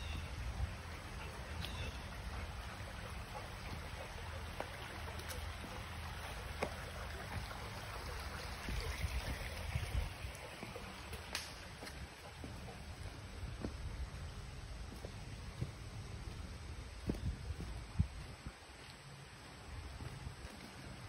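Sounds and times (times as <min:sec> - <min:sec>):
creek water trickling: 0:00.0 - 0:21.0.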